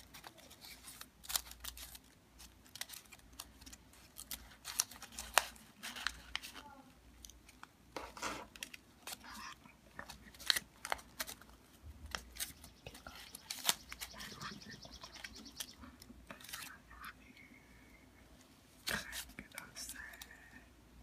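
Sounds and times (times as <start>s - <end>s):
paper crackling and rustling: 0.0s - 16.8s.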